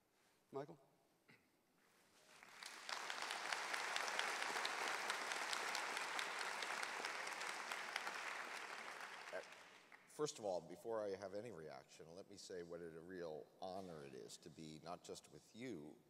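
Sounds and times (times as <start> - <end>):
audience applauding: 2.3 - 10.1.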